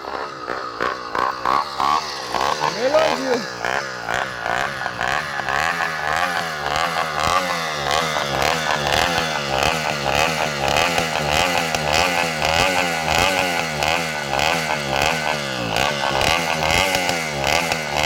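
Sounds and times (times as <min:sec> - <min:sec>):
two-stroke engine revving: 0:00.0 - 0:18.0.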